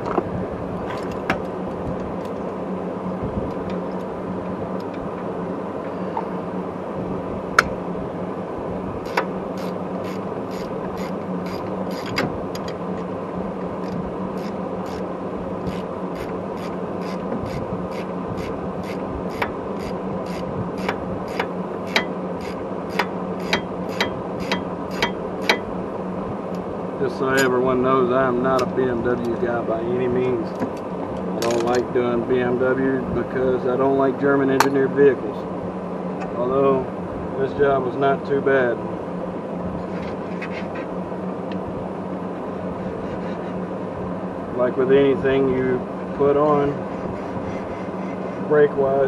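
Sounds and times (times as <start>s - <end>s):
steady hum: 0.0s - 49.0s
ratchet wrench clicking: 9.0s - 12.7s, 13.8s - 15.0s, 15.7s - 25.7s.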